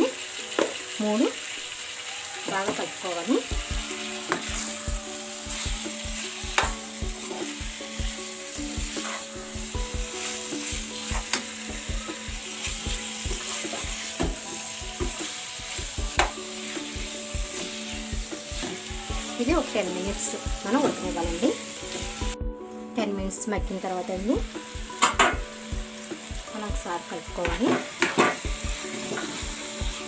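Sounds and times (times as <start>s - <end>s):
chicken sizzling in a pan: 0.0s - 22.4s, 23.7s - 30.0s
spoon scraping and knocking a pan: 8.6s - 9.3s.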